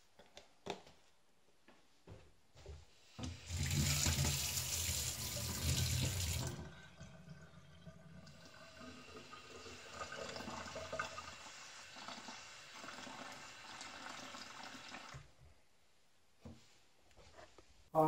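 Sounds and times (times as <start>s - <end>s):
tap water filling a metal cup: 3.2s - 15.2s.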